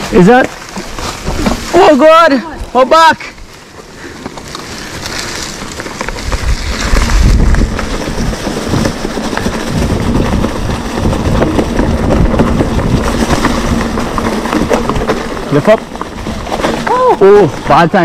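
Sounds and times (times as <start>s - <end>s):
bike rattling: 0.0s - 18.0s
tyres crunching over leaves: 0.0s - 18.0s
wind buffeting microphone: 4.8s - 17.8s.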